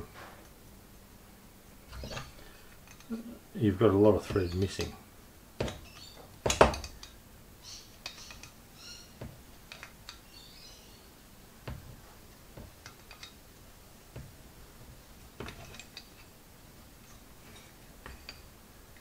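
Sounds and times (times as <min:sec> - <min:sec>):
spanner clicking on metal: 0:02.0 - 0:03.1, 0:05.8 - 0:07.2, 0:08.0 - 0:08.6, 0:09.6 - 0:10.3, 0:12.8 - 0:13.4
bird chirps: 0:05.8 - 0:06.3, 0:07.6 - 0:09.2, 0:10.2 - 0:11.2.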